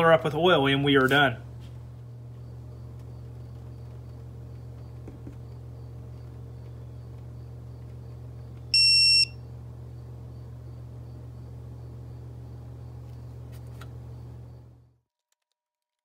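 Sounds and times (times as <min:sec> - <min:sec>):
steady low hum: 0:00.0 - 0:15.0
torque wrench beep: 0:08.7 - 0:09.4.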